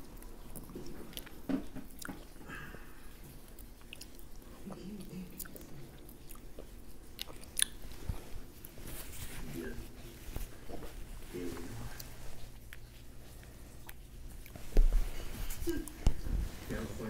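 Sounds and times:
chewing and biting shellfish: 3.1 - 8.8.

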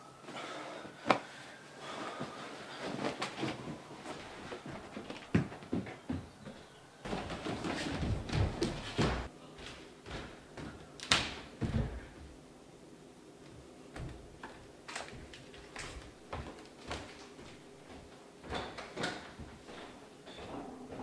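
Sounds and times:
knocks and clunks in kitchen: 5.2 - 9.3, 10.0 - 12.3, 17.9 - 21.0.

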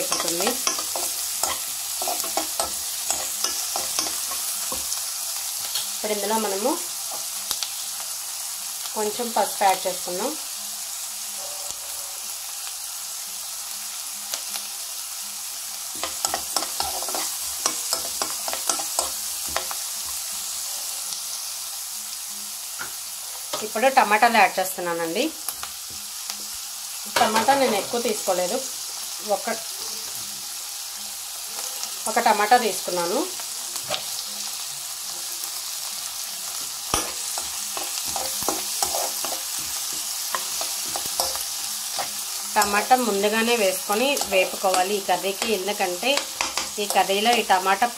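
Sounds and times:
spatula scraping pan: 0.0 - 5.2, 36.9 - 45.6
onions sizzling in oil: 0.0 - 47.9.

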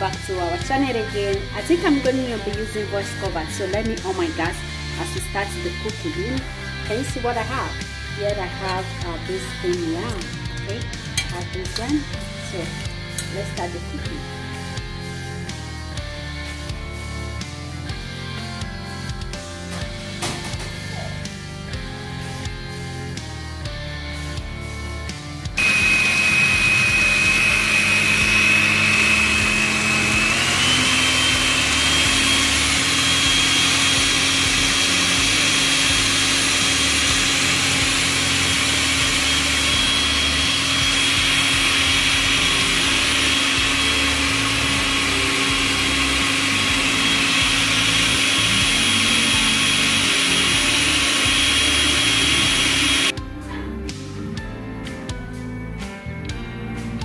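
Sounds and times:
blender motor whine: 25.6 - 53.2.

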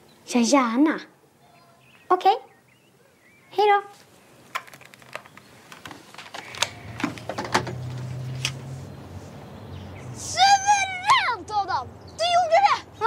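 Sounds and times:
light clicks and knocks: 4.5 - 8.6.

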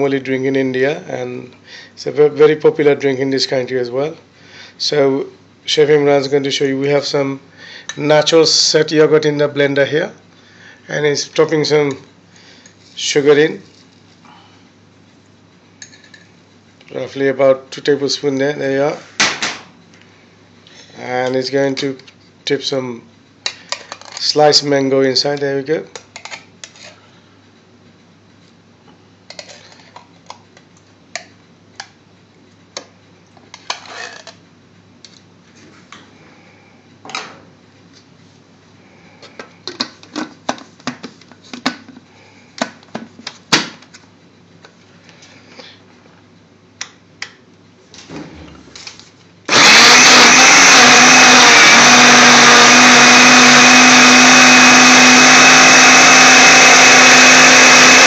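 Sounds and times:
electric blender running: 49.5 - 58.0.

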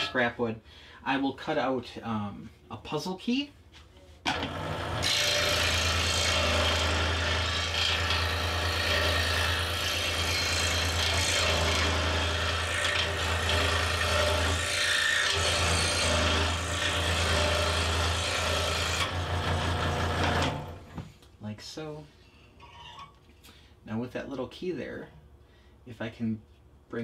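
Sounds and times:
saw blade rasping through wood: 4.3 - 20.6.

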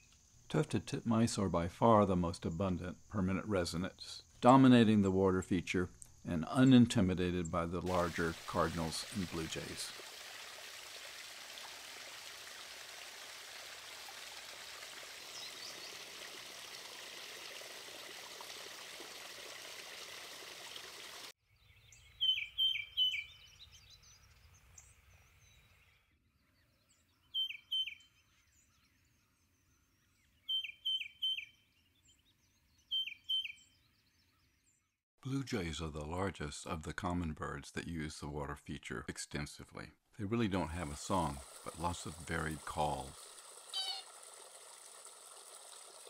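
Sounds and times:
water trickling over rocks: 7.9 - 21.4, 40.7 - 46.0
bird singing high clear notes: 21.9 - 24.2, 27.3 - 28.2, 30.4 - 31.8, 32.8 - 33.8, 43.7 - 44.1.

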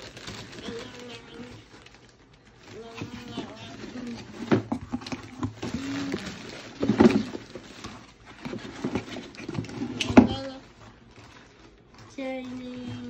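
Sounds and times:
cardboard box rustling and scraping: 2.7 - 13.0.

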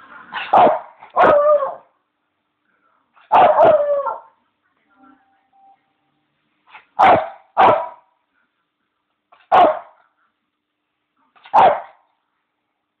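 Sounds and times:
dog barking: 0.4 - 1.8, 3.3 - 4.3, 6.9 - 8.1, 9.4 - 10.0, 11.4 - 12.0.

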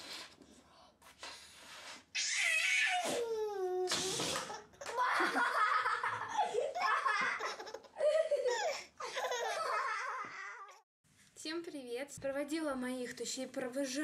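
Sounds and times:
baby laughing: 4.4 - 10.8.

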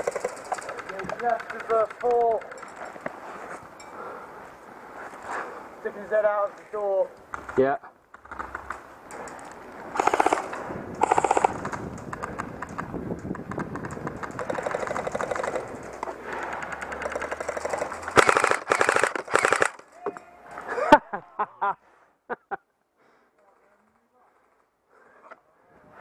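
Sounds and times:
airsoft guns firing full auto: 0.0 - 2.4, 9.9 - 12.3, 13.8 - 19.8.

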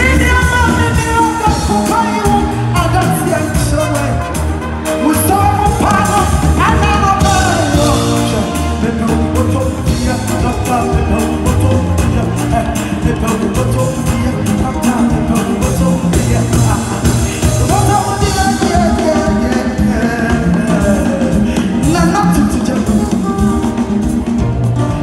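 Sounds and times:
woman singing: 0.0 - 3.4
band with drum kit: 0.0 - 25.0
steady bass line: 0.0 - 25.0.

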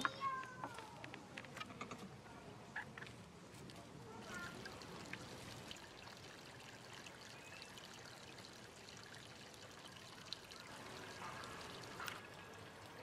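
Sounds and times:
water trickling: 4.1 - 13.0.

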